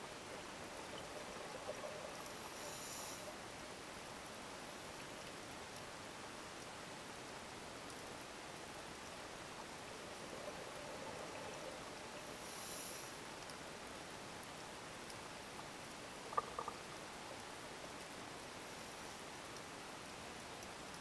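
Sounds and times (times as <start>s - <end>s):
underwater hiss: 1.4s - 3.5s, 10.3s - 13.4s
scuba regulator inhalation: 2.5s - 3.3s, 12.4s - 13.2s.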